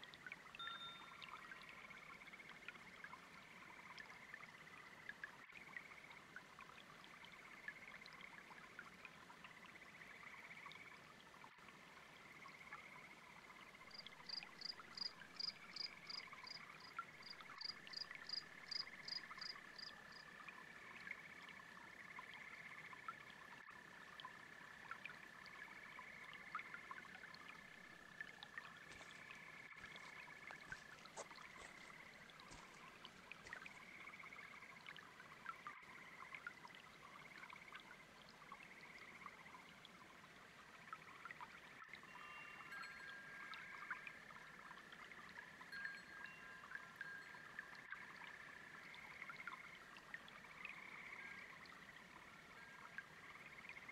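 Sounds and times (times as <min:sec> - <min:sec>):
brook water trickling: 0:00.0 - 0:53.9
frogs and toads calling: 0:12.2 - 0:23.2, 0:23.8 - 0:36.5, 0:42.0 - 0:44.6, 0:45.7 - 0:53.9.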